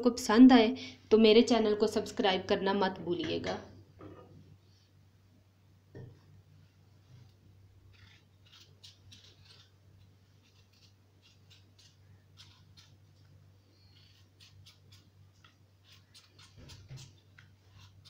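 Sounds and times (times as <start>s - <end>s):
knife scraping potato skin: 7.8s - 18.0s.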